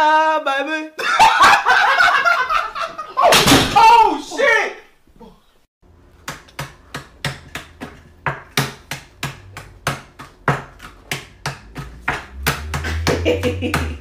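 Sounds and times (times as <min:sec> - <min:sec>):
rapid hand claps and slaps: 0:06.2 - 0:14.0.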